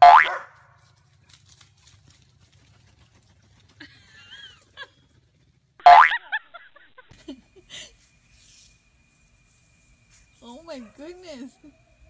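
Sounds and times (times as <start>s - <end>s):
cartoon boing: 0.0s - 0.3s, 5.8s - 6.2s.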